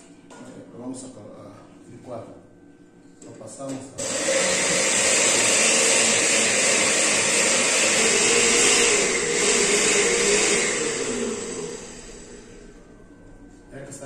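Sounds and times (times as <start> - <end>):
blender running: 4.0 - 12.7
steady hum note: 6.1 - 14.0.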